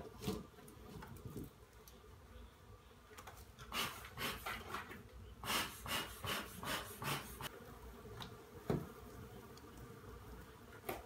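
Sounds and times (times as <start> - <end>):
honeybees buzzing: 7.1 - 11.0.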